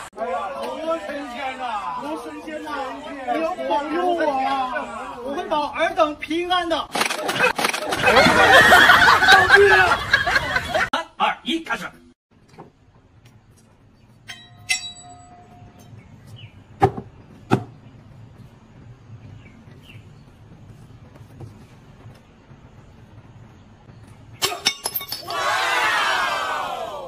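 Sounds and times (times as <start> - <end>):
sword blade clinking: 14.3 - 15.7
sharp knocks: 16.8 - 17.7.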